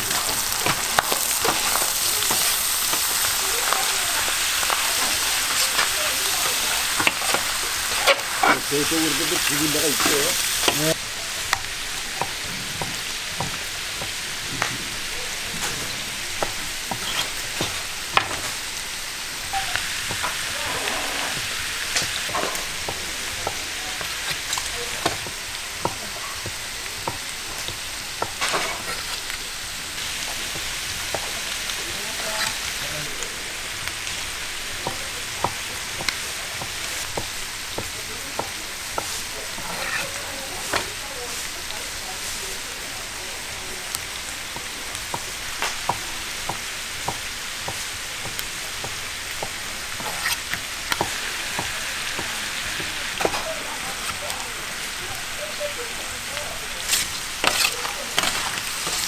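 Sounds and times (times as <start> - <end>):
meat sizzling on a griddle: 0.0 - 59.0
metal spatulas scraping a plate: 7.0 - 10.8, 16.9 - 18.5, 28.4 - 29.2, 39.0 - 40.9, 50.0 - 51.1, 56.8 - 59.0.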